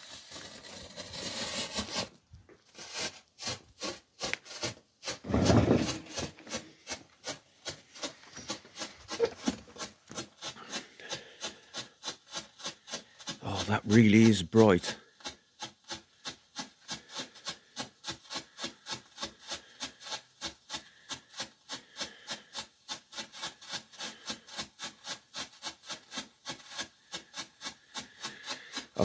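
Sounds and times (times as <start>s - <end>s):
strobe firework rasping fizz: 0.0s - 2.2s.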